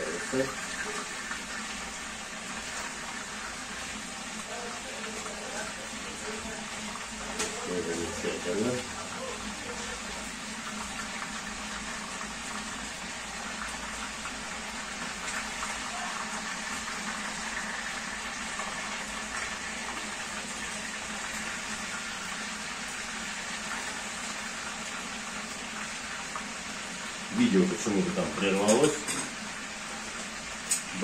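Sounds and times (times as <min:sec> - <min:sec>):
food hissing on a stove: 0:00.0 - 0:31.0.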